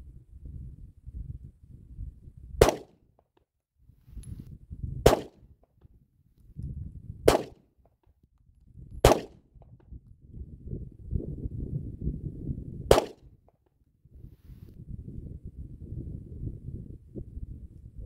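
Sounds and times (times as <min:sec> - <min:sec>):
pistol shots: 0:02.6 - 0:02.9, 0:05.1 - 0:05.4, 0:07.3 - 0:07.6, 0:09.0 - 0:09.3, 0:12.9 - 0:13.2.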